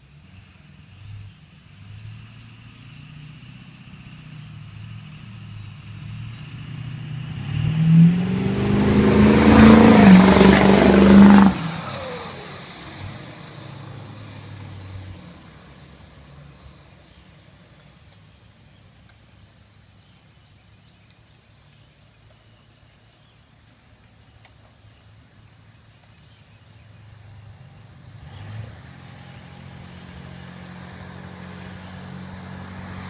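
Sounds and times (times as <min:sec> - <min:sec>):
diesel truck engine revving: 0:01.9 - 0:16.1, 0:27.2 - 0:33.0.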